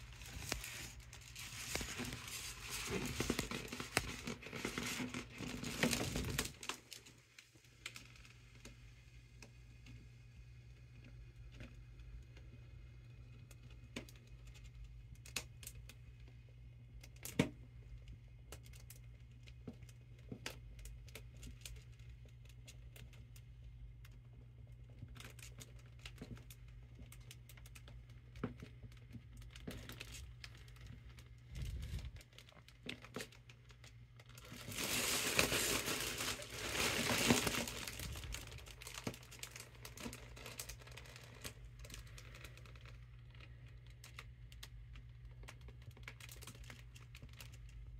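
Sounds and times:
foil balloon crinkling: 0.0 - 7.2, 25.0 - 47.9.

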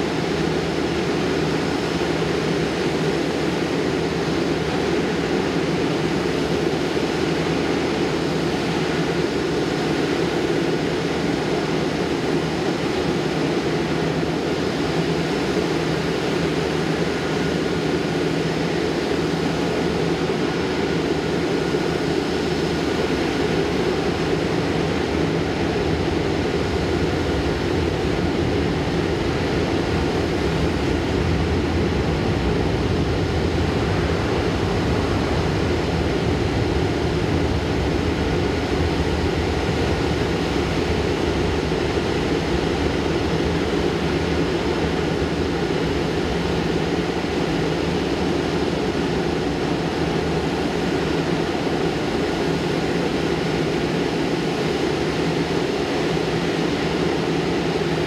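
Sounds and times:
faint steady whine: 0.0 - 58.0.

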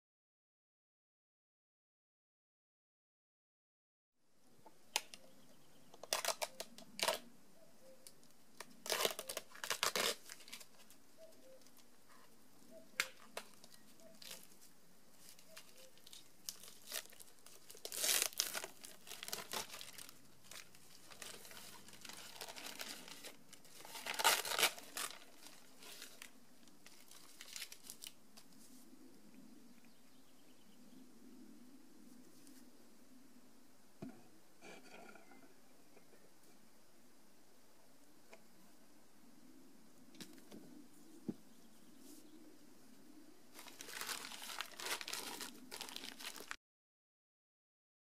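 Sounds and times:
packaging tearing and crinkling: 6.0 - 7.3, 8.6 - 11.0, 15.2 - 28.2, 43.6 - 46.6.

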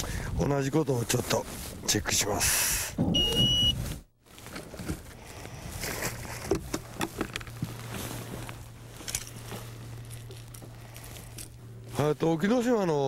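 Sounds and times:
steady low hum: 0.0 - 13.0
knocks and clicks of handling gear: 5.8 - 11.6.

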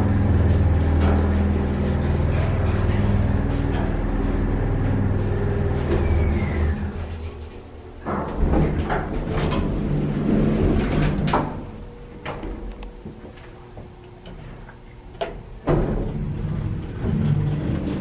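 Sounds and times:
falling motor whine: 0.0 - 7.3
elevator doors sliding open: 0.0 - 12.9, 15.3 - 18.0
elevator motor humming: 0.0 - 18.0.

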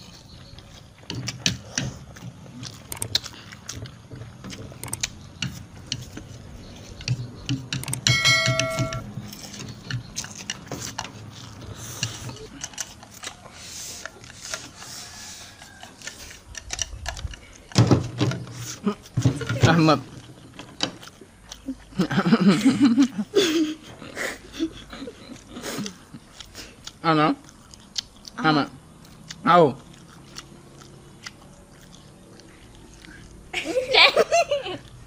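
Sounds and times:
noodles slurped and chewed: 0.0 - 7.7, 9.2 - 17.8, 19.9 - 33.9
brief chiming tone: 8.1 - 9.1.

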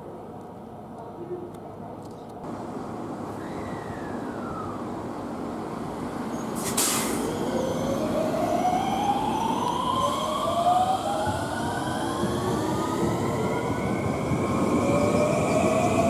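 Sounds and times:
short hiss: 6.6 - 7.3.

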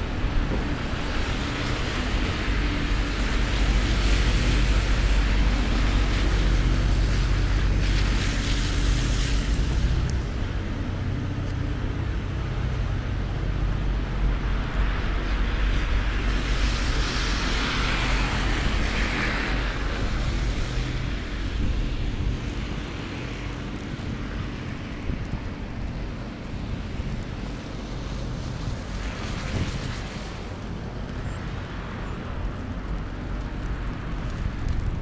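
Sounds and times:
low engine hum: 0.0 - 35.0
traffic hiss: 0.0 - 35.0.

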